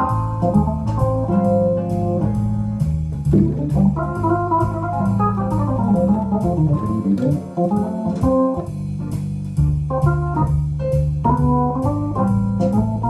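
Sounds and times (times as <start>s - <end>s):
organ playing jazz-blues melody: 0.0s - 13.0s
sustained bass notes: 0.0s - 13.0s
high ticking beat: 3.2s - 13.0s.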